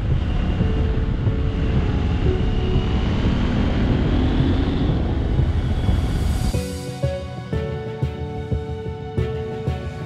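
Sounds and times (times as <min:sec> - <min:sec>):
wind buffeting microphone: 0:00.0 - 0:06.6.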